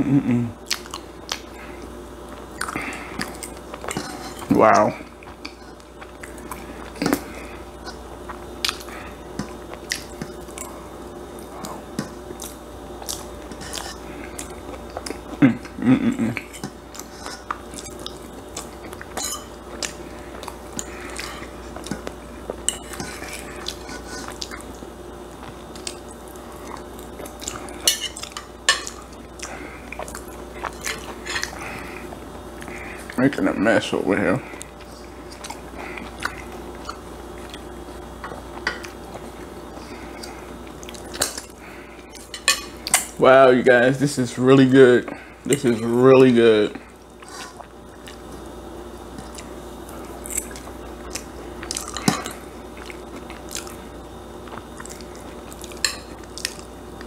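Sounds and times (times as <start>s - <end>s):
chewing: 0.6s - 33.2s, 34.5s - 43.2s, 46.7s - 48.5s, 49.1s - 57.0s
fork scraping a plate: 3.9s - 4.5s, 13.5s - 14.0s, 19.2s - 19.6s, 22.7s - 24.4s.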